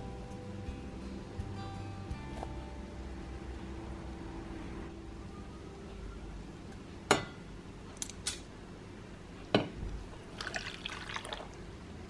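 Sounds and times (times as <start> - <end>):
water pouring into pan: 10.3 - 11.6.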